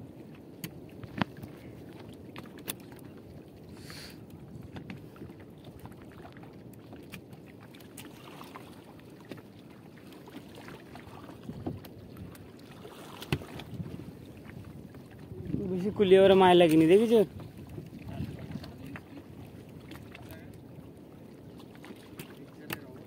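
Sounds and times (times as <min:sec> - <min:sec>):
net knocks and rustles against hull: 0:10.3 - 0:14.7.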